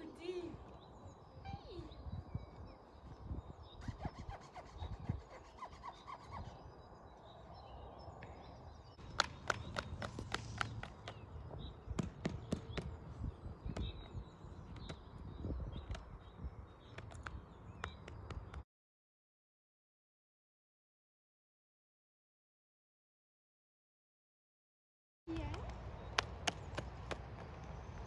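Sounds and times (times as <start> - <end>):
faint bird chirps: 0.0 - 9.0
low wind rumble: 0.0 - 18.6.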